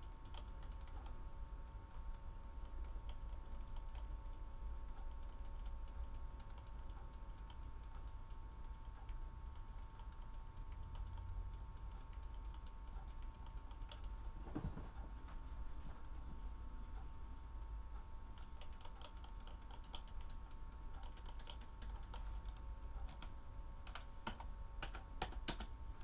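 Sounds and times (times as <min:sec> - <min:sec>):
computer keyboard typing: 0:00.0 - 0:01.2, 0:01.9 - 0:14.2, 0:18.3 - 0:25.8
steady hum: 0:00.0 - 0:26.0
soft low thump: 0:14.4 - 0:16.4.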